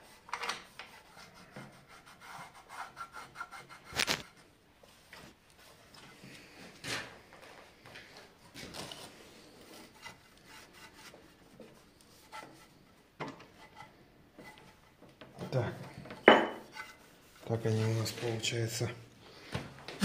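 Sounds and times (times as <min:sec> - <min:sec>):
rag wiping metal: 0:16.6 - 0:18.8.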